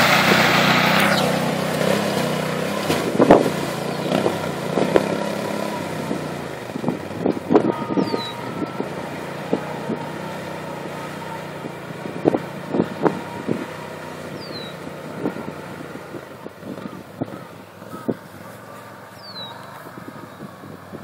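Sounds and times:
atv engine running: 0:00.0 - 0:21.0.

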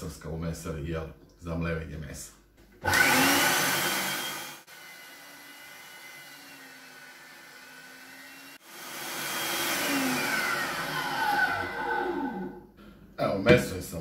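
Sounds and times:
electric meat grinder motor: 0:02.8 - 0:12.4.

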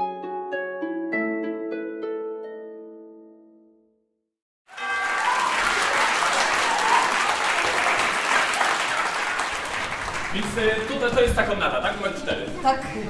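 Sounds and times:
theme music with plucked notes: 0:00.0 - 0:03.8
audience applause: 0:04.7 - 0:11.6.

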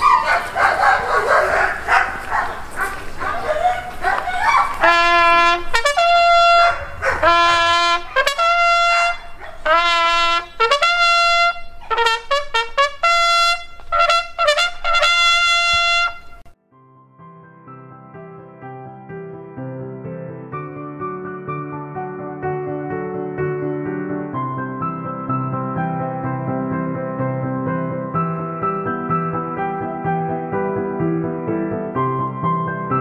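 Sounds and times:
dog barking: 0:00.0 - 0:05.2, 0:06.4 - 0:10.0, 0:11.8 - 0:12.3
crowd noise: 0:00.0 - 0:09.7
trumpet bugle call: 0:04.4 - 0:16.6.

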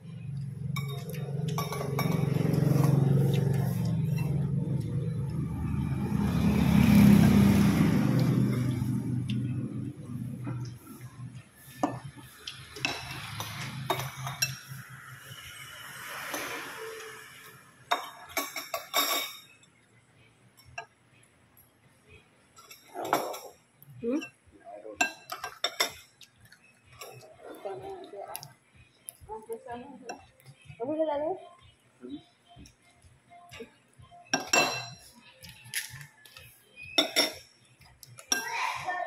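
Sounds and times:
cutlery clinking on ceramic bowls: 0:00.7 - 0:04.6, 0:11.8 - 0:14.8, 0:17.9 - 0:19.7, 0:22.5 - 0:24.4, 0:25.0 - 0:27.3, 0:34.3 - 0:38.7.

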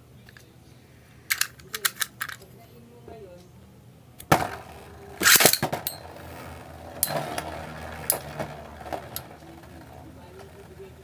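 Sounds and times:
launcher rattling burst: 0:04.3 - 0:09.3
spinning tops clacking: 0:04.3 - 0:10.6
spinning tops whirring on plastic: 0:04.3 - 0:11.0.

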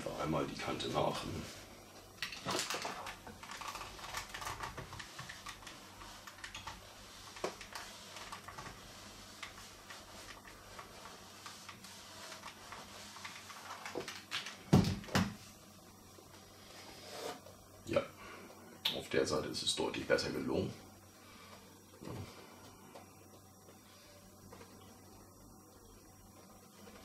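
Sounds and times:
iron rustling and scraping paper: 0:00.0 - 0:14.7, 0:16.3 - 0:17.6.

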